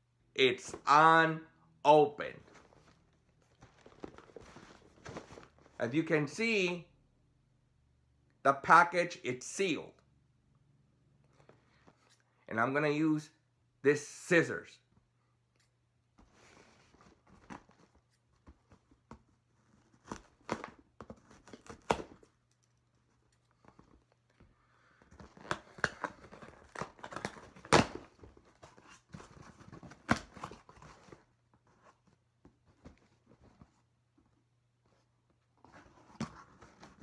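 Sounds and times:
cardboard crinkling: 2.4s - 5.8s.

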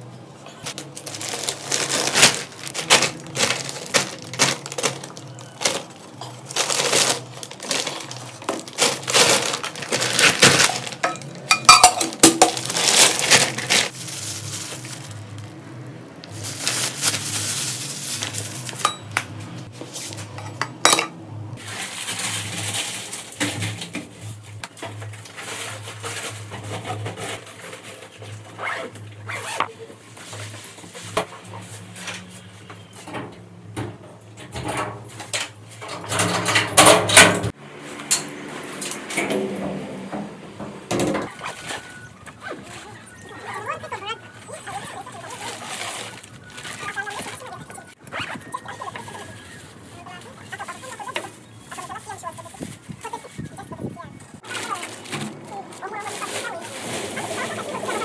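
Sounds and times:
plastic bags rustling: 0.5s - 32.6s, 41.3s - 58.0s
glass jar clinking: 11.0s - 12.7s, 18.8s - 19.2s, 20.4s - 21.2s.

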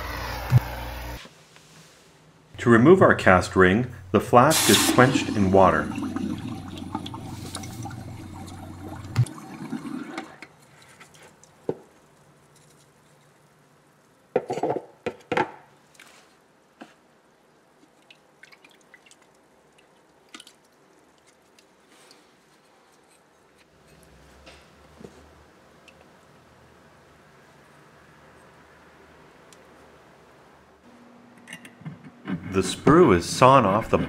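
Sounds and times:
water splashing: 4.4s - 10.4s
water churning in a bucket: 4.4s - 10.6s
water dripping: 5.0s - 10.5s, 18.0s - 21.4s.

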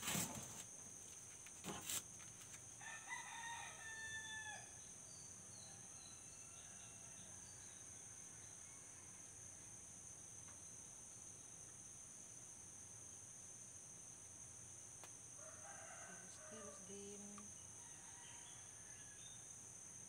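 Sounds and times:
rooster crowing: 2.8s - 4.8s, 15.4s - 17.2s, 17.8s - 19.4s.

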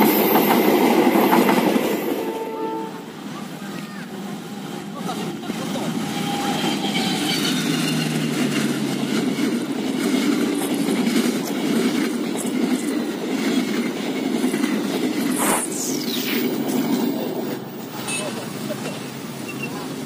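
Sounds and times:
train wheels rumbling on rails: 0.0s - 20.0s.

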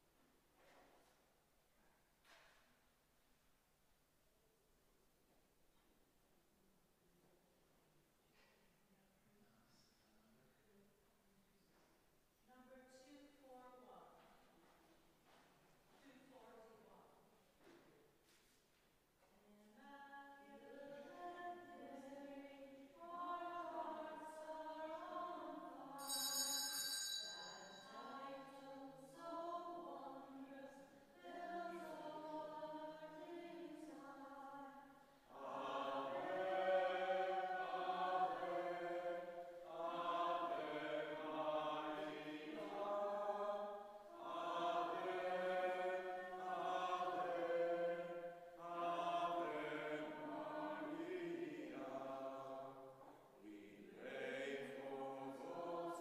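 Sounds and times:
congregation singing a hymn: 20.2s - 56.0s
brief high ringing: 26.0s - 27.8s.

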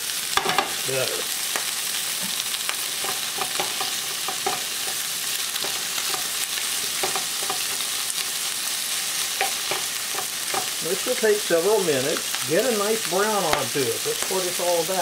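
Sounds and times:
meat sizzling in a skillet: 0.0s - 15.0s
utensil scraping a pan: 2.9s - 7.9s.

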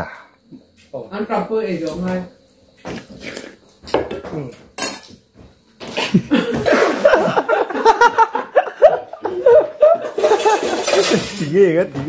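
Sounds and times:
people laughing: 6.0s - 11.4s.

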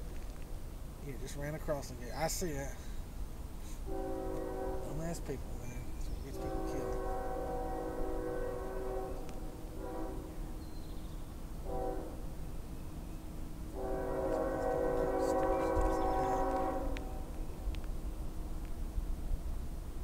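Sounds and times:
locomotive air horn blasts: 3.7s - 5.2s, 6.3s - 10.6s, 11.6s - 12.4s, 13.7s - 17.4s.

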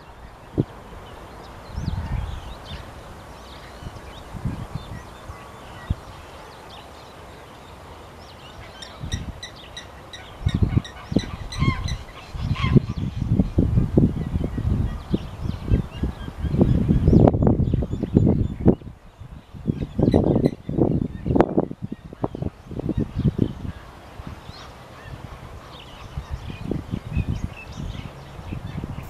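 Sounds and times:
wind rumbling on microphone: 0.0s - 29.0s.

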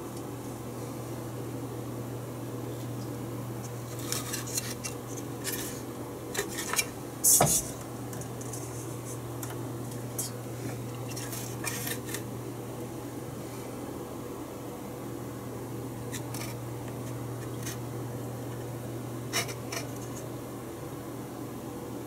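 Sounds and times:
steady low hum: 0.0s - 22.0s
circuit board clicks and scrapes: 19.3s - 20.3s.

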